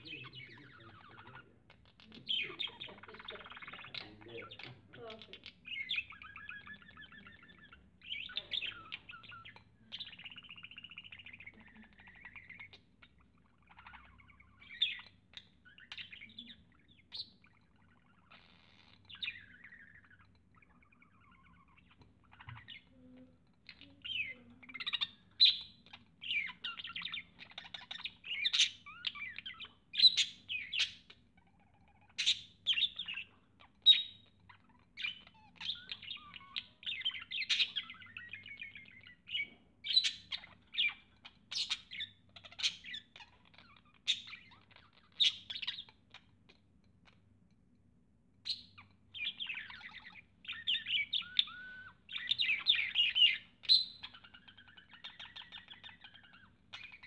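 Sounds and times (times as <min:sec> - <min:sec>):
budgerigar chirping and warbling: 0:00.0 - 0:47.2, 0:48.4 - 0:57.0.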